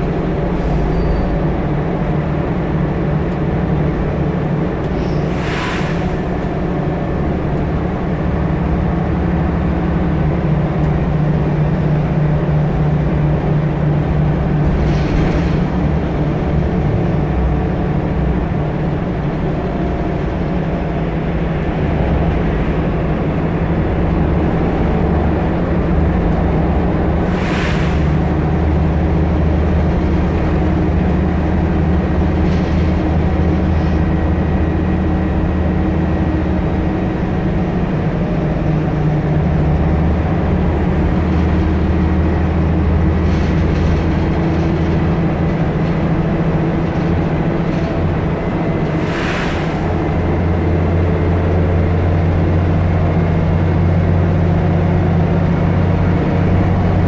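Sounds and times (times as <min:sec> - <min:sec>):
bus diesel engine drone: 0:00.0 - 0:57.0
short air hiss: 0:05.1 - 0:06.3, 0:27.3 - 0:28.2, 0:49.0 - 0:50.0.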